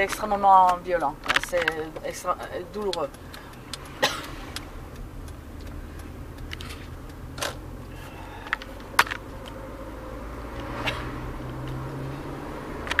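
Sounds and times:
sharp clicks and taps: 0.0 - 10.0
low steady car rumble: 0.0 - 13.0.

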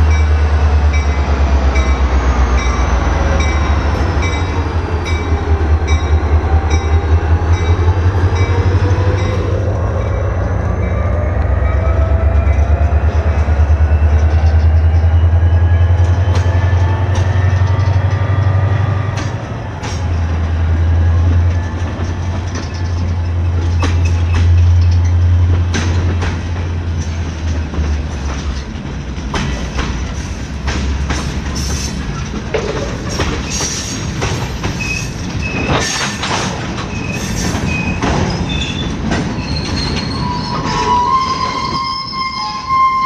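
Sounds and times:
freight train rumbling past: 0.0 - 43.0
wheels clicking over rails: 12.2 - 41.7.

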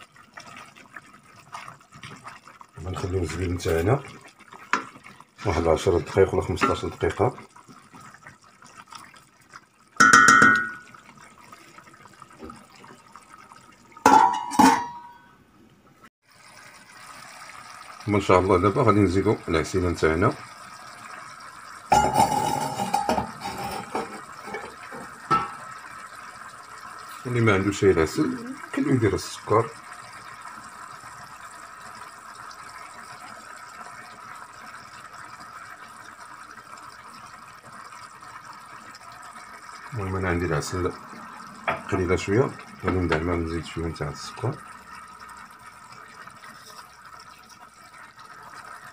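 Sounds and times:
stew bubbling: 0.0 - 15.1, 16.3 - 48.9
glass lid clanking on pot: 10.0 - 10.9, 14.0 - 15.3, 21.9 - 25.7
metallic knock on pot: 10.0 - 10.9, 14.0 - 15.3, 25.3 - 25.6.

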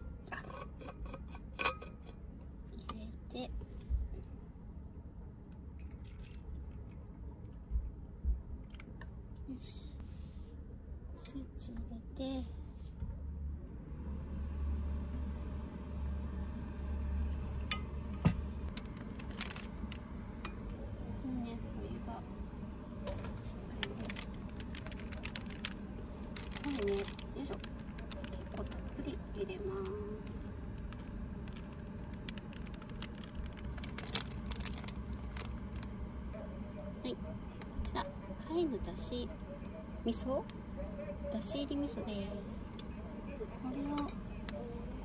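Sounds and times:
low steady hum: 0.0 - 45.0
plastic food packet crinkling: 18.7 - 20.1, 23.7 - 29.2, 30.7 - 35.9.

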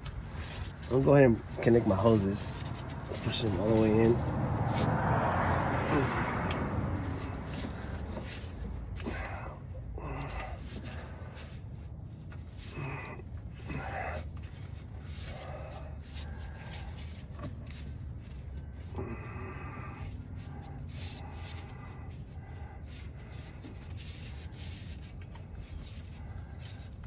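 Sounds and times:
man breathing heavily: 0.0 - 27.0
man snorting: 5.6 - 6.6, 8.9 - 11.5, 12.5 - 14.4, 18.8 - 23.7.

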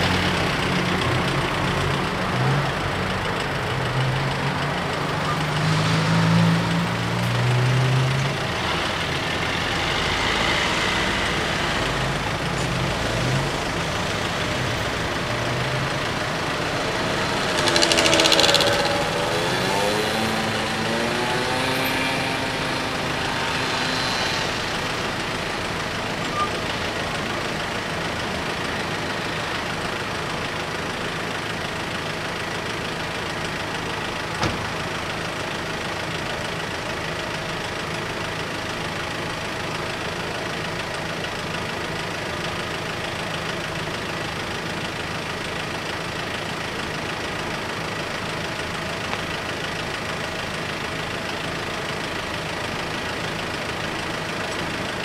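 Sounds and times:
car engines idling: 0.0 - 55.0
pitched engine note: 5.2 - 29.6.

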